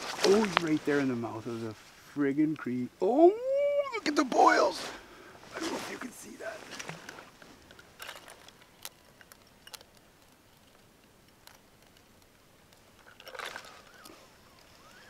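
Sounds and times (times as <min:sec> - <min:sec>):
rustle: 0:00.0 - 0:15.0
faint high gliding calls: 0:03.0 - 0:05.0, 0:13.0 - 0:15.0.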